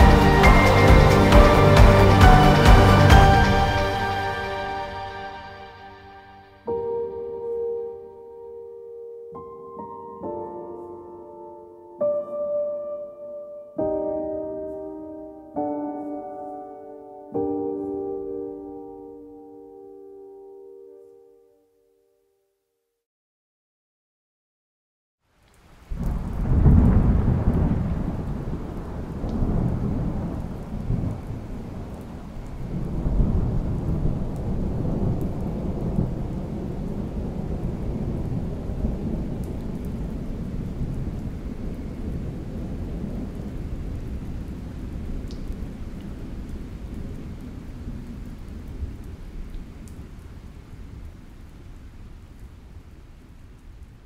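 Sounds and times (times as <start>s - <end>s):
thunder rumbling: 0.0s - 5.0s, 25.9s - 49.3s
steady rain: 0.0s - 7.8s, 25.2s - 54.0s.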